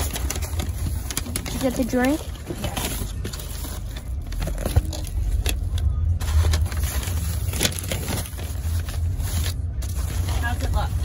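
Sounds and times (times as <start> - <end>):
paper bag crinkling: 0.0 - 11.0.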